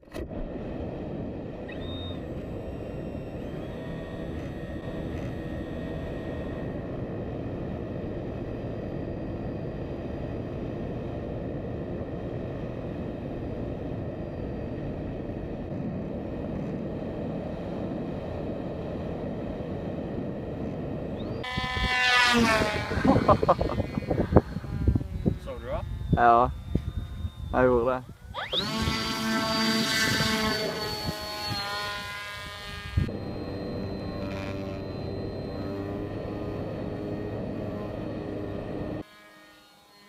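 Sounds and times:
electric motor and propeller tones: 0:00.0 - 0:40.0
wind rush: 0:19.2 - 0:33.2.

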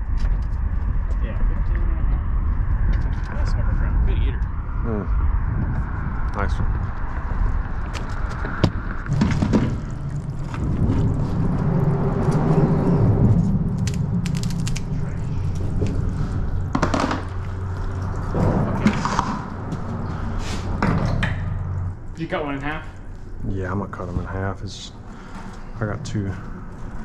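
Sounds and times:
boat motor rumbling: 0:01.8 - 0:27.0
knocks and thumps: 0:08.4 - 0:11.0, 0:16.6 - 0:17.5.

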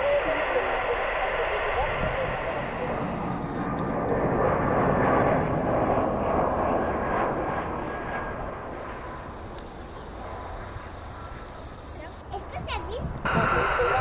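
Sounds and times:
jet engines rushing with whine: 0:00.0 - 0:14.0.

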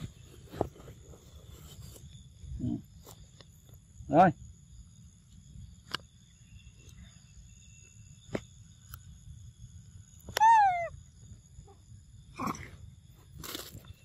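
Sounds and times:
insects droning: 0:00.0 - 0:14.0
monkey calling: 0:10.4 - 0:10.9.

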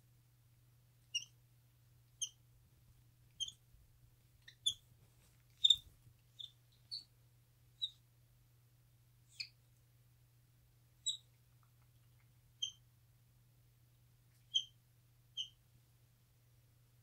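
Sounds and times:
monkey chirping: 0:01.1 - 0:01.3, 0:02.2 - 0:02.4, 0:03.4 - 0:03.6, 0:04.4 - 0:04.8, 0:05.6 - 0:07.1, 0:11.0 - 0:11.2, 0:14.5 - 0:14.7, 0:15.4 - 0:15.6.

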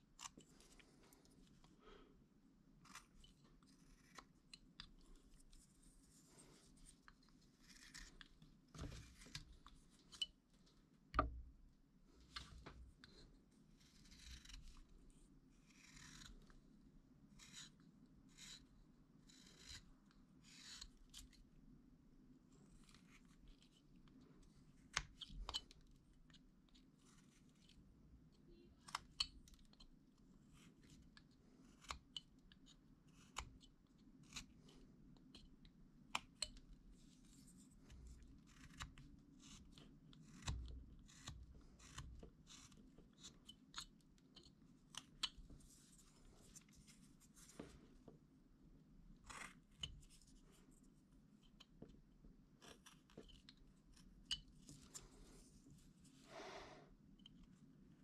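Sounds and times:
carving knife cutting wood: 0:00.1 - 0:00.9, 0:02.8 - 0:10.2, 0:13.1 - 0:16.6, 0:17.3 - 0:21.5, 0:22.8 - 0:24.2, 0:28.7 - 0:46.8, 0:49.1 - 0:50.7, 0:52.5 - 0:55.4
knife clicks and scrapes: 0:06.4 - 0:10.4.

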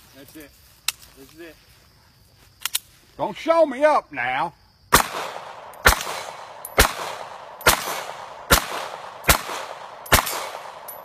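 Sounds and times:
pistol shots with echo: 0:04.9 - 0:11.0.

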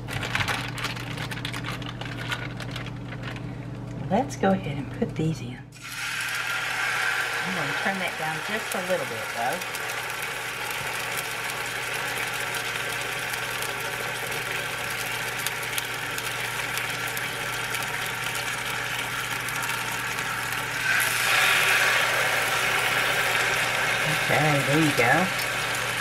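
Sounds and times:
steady hum: 0:00.0 - 0:12.4
chicken sizzling in oil: 0:05.8 - 0:26.0.

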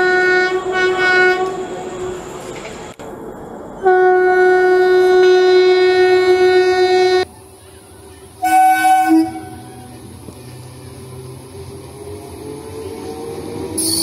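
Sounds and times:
train horn blasts: 0:00.0 - 0:01.8, 0:03.8 - 0:07.2, 0:08.4 - 0:09.9
train rumbling: 0:00.0 - 0:14.0.

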